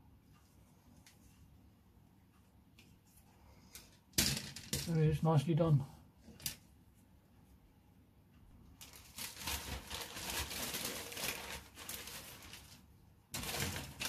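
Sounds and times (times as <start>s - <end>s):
plastic sprues rustling and clicking: 8.8s - 14.0s.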